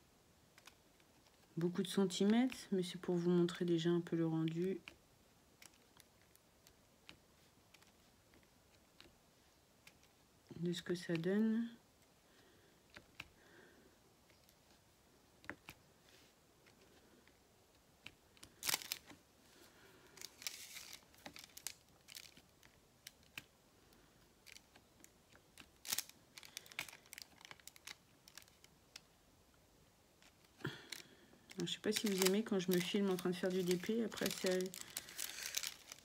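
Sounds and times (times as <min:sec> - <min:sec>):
plastic film crinkling: 0:18.3 - 0:23.5, 0:24.4 - 0:29.1, 0:30.2 - 0:36.0.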